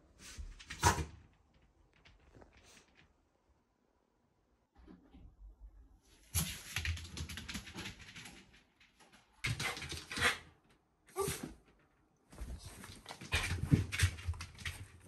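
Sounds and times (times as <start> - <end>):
dog paws tapping on wooden floor: 6.4 - 10.4, 11.6 - 15.0.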